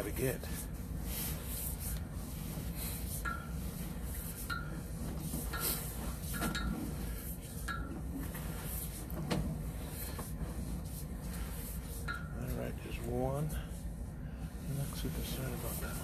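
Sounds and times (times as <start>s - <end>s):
steady low hum: 0.0s - 16.0s
metallic clinks of cable reel: 4.4s - 8.0s.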